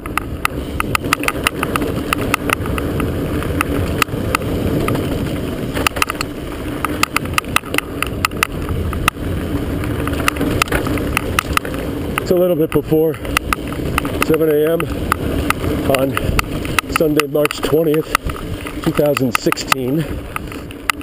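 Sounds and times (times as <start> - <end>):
bike tyres rumbling on dirt: 0.0 - 21.0
wind: 0.0 - 21.0
camera banging on chest mount: 5.7 - 9.2.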